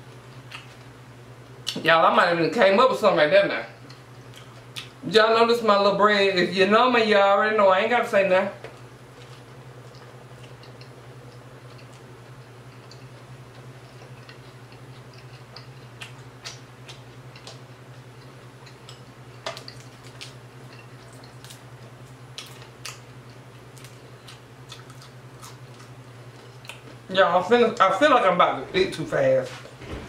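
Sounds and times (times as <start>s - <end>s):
steady low hum: 0.0s - 30.0s
chewing mouth smacks: 3.8s - 5.0s, 9.3s - 21.6s, 22.4s - 27.0s.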